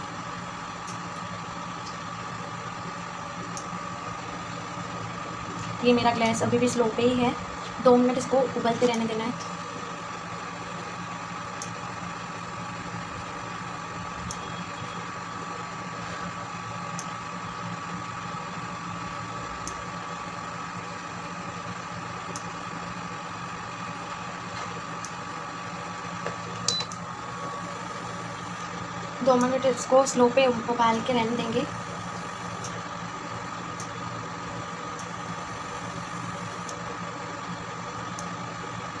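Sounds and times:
cooktop fan hum: 0.0 - 39.0.

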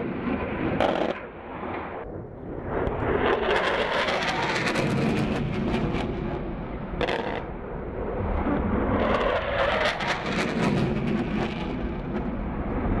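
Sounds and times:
fighter jet engine roar: 0.0 - 13.0.

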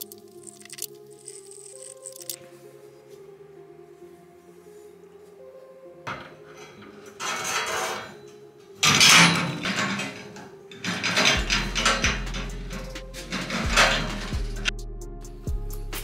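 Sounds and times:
trolley rolling on steel beam: 6.5 - 14.7.

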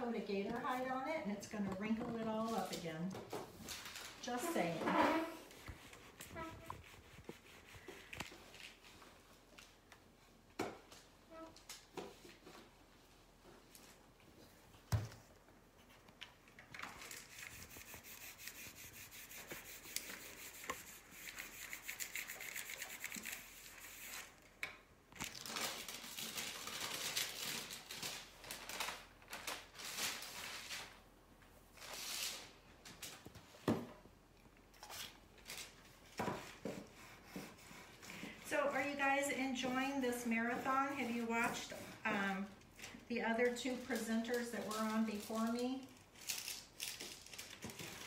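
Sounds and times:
tissue paper rustling and scraping: 3.5 - 9.2, 16.8 - 24.3, 25.2 - 31.0.

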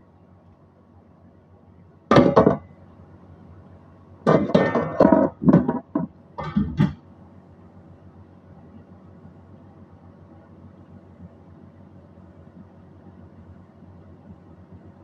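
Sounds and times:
metal cookware clattering: 4.3 - 5.7.

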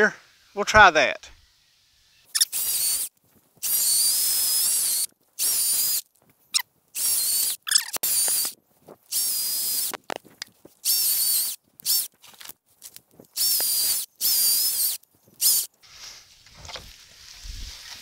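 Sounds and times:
electric chainsaw cutting wood: 1.3 - 6.0, 7.0 - 10.0, 10.8 - 12.1, 13.4 - 15.7.

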